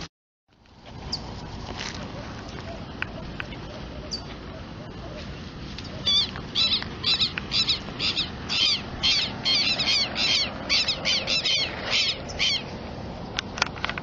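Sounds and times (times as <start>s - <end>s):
bird calling: 5.8s - 12.8s.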